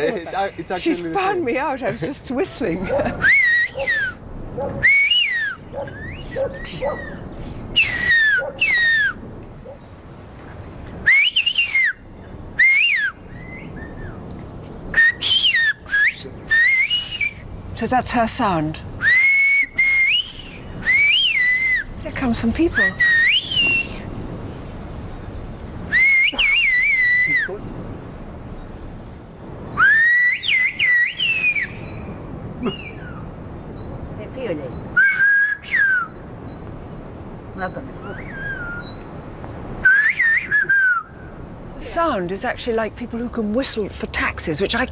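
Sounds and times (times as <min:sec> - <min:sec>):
woman whistling: 0:03.2 - 0:04.2, 0:04.8 - 0:06.2, 0:07.8 - 0:09.2, 0:11.1 - 0:12.0, 0:15.0 - 0:17.4, 0:19.0 - 0:21.8, 0:22.8 - 0:24.0, 0:25.9 - 0:27.5, 0:29.8 - 0:31.7, 0:35.0 - 0:36.1, 0:38.1 - 0:39.0, 0:39.8 - 0:41.1.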